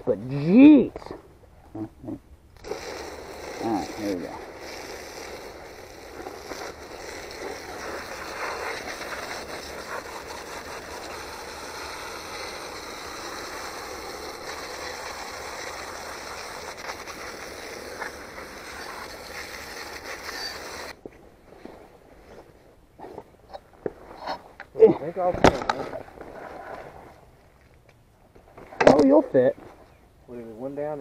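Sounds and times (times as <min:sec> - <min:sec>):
hose spraying water on bike: 0:02.6 - 0:21.0.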